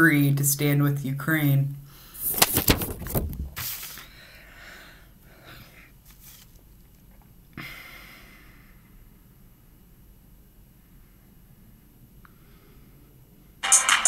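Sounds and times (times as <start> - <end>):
device handling noise: 2.2 - 3.9.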